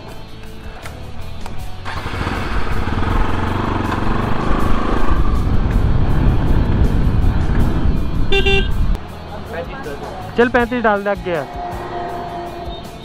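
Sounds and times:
background music: 0.0s - 13.0s
vehicle engine rumbling: 1.3s - 10.8s.

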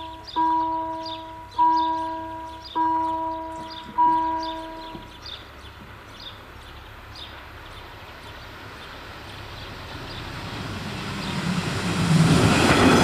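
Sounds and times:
crossing warning bell dinging: 0.0s - 5.2s
birds chirping: 0.0s - 12.9s.

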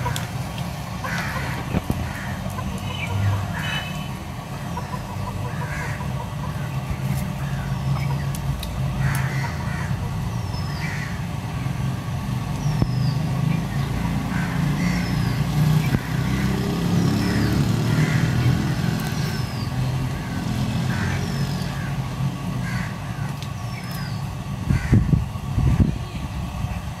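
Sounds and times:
chickens clucking: 0.0s - 10.4s
vehicle engine running: 0.0s - 27.0s
small bird chirping: 12.5s - 14.0s.

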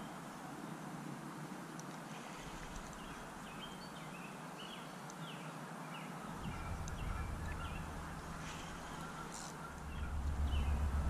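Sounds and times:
background hiss: 0.0s - 11.0s
bird chirping: 2.8s - 11.0s
low rumble: 6.3s - 11.0s.

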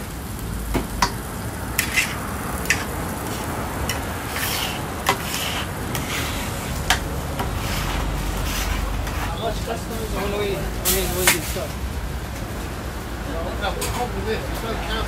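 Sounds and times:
food sizzling on a griddle: 0.0s - 11.9s
utensil scraping metal griddle: 1.0s - 11.8s.

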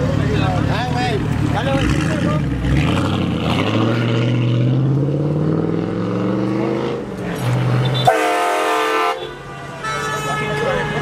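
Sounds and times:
vehicle engine accelerating: 0.0s - 8.1s.

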